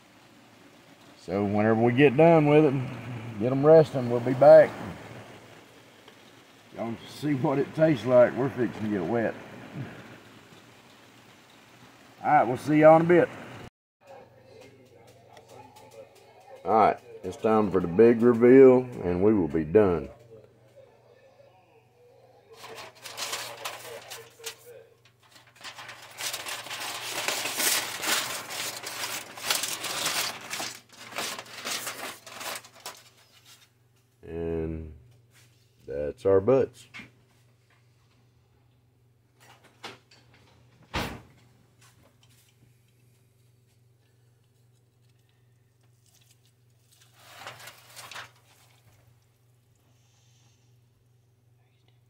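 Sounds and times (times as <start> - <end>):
steady low hum: 0.0 - 13.7
aluminium foil crinkling: 22.5 - 33.7, 42.0 - 49.8
meat tearing and squishing: 45.8 - 48.8.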